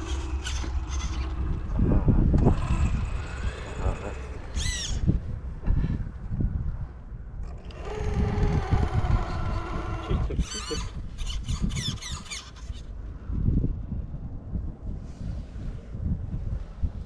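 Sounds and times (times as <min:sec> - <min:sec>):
electric motor and gearbox whining: 0:00.0 - 0:05.2, 0:07.4 - 0:12.9
wind rumbling on microphone: 0:00.0 - 0:17.0.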